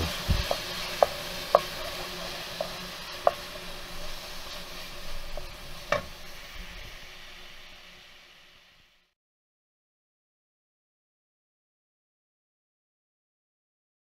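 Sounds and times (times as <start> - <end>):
wooden spoon knocking against pan: 0.0 - 1.8
food sizzling in a frying pan: 0.0 - 9.1.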